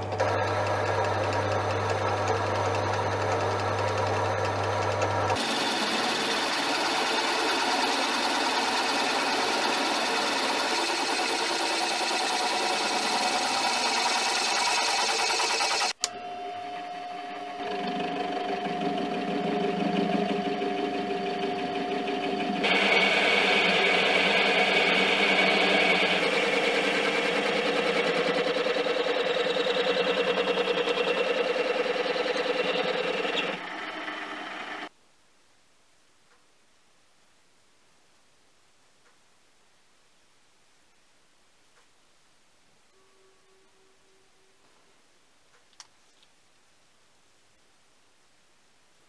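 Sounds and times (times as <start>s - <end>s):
drill press motor hum: 0.0s - 34.9s
drill bit cutting metal: 5.4s - 16.0s, 16.7s - 34.9s.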